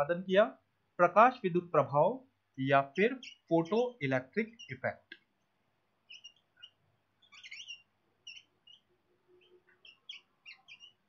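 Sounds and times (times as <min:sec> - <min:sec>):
marker squeaking on whiteboard: 0:06.1 - 0:11.0.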